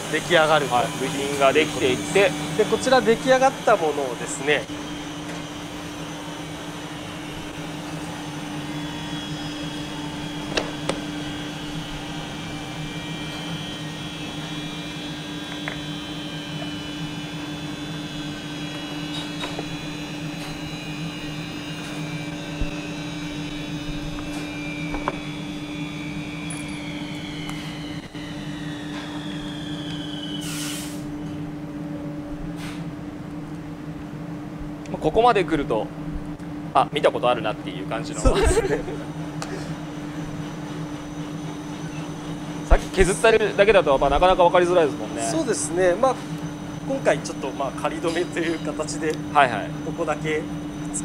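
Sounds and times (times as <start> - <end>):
high whine falling in pitch: 0.0 - 51.0
woodworking machinery hum: 0.0 - 51.0
burst of hiss: 30.3 - 31.1.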